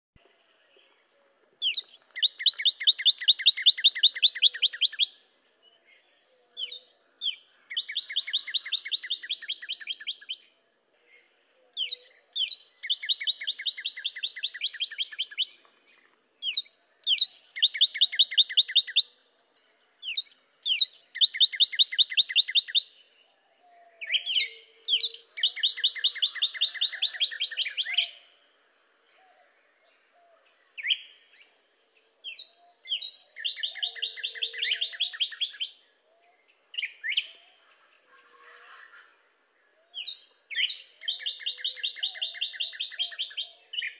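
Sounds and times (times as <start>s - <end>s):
cardinal singing whistles and trills: 1.6s - 5.2s, 6.3s - 10.5s, 11.7s - 15.6s, 16.4s - 19.2s, 20.0s - 23.0s, 23.6s - 28.4s, 29.2s - 31.6s, 32.2s - 37.6s, 39.8s - 43.9s.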